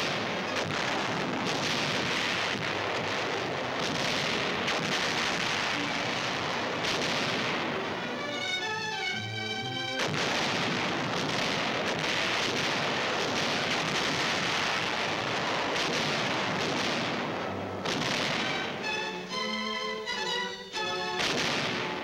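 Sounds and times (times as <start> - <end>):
faint crackle: 0.0 - 9.1, 10.0 - 19.0
film soundtrack hiss: 0.0 - 22.0
film music: 2.6 - 13.0, 16.8 - 22.0.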